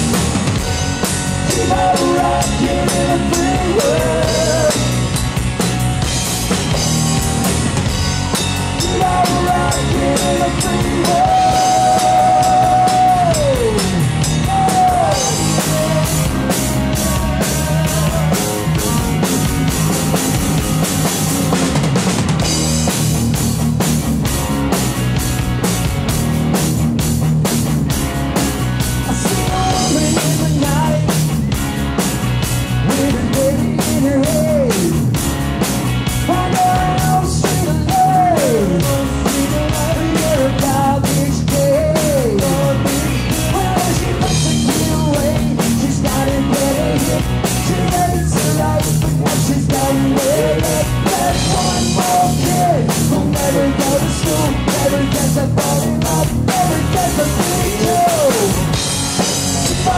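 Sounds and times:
bass guitar: 0.0 - 59.9
drum kit fast beat: 0.0 - 59.9
electric guitar: 0.0 - 59.9
man singing lead vocals: 1.3 - 5.1, 8.6 - 19.3, 29.0 - 31.4, 32.8 - 35.2, 36.2 - 58.8, 59.6 - 59.9.

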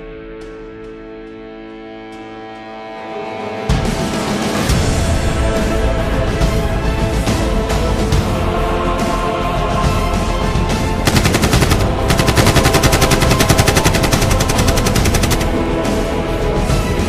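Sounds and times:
dramatic background music: 0.0 - 17.0
automatic gunfire bursts: 11.1 - 15.7.

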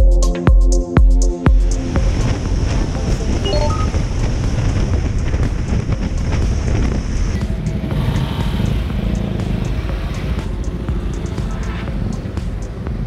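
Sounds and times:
wind noise: 1.5 - 11.2
motorcycle engine: 1.7 - 13.0.

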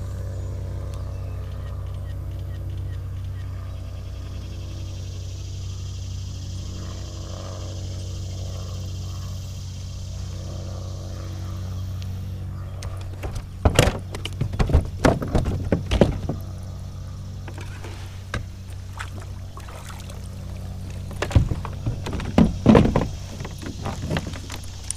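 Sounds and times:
steady low hum: 0.0 - 24.9
gear knocking and clattering: 13.0 - 16.4, 21.0 - 24.9.

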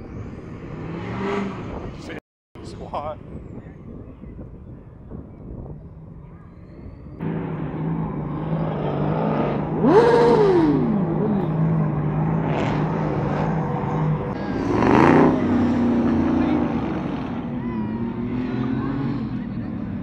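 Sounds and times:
engine revving: 0.0 - 2.2, 7.2 - 20.0
cars driving past slowly: 7.2 - 20.0.

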